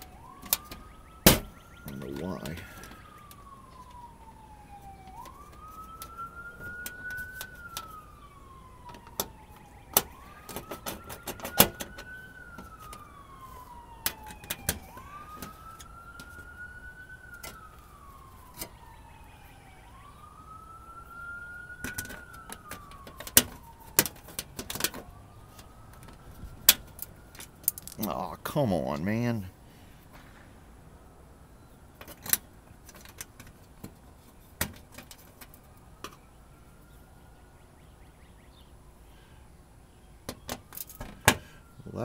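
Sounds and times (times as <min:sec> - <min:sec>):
siren wailing: 0:00.0 - 0:39.2, 0:40.2 - 0:42.0.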